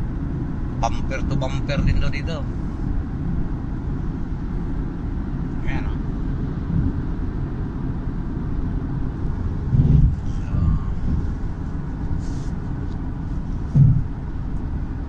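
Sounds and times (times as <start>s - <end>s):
car cabin road and engine rumble: 0.0s - 15.0s.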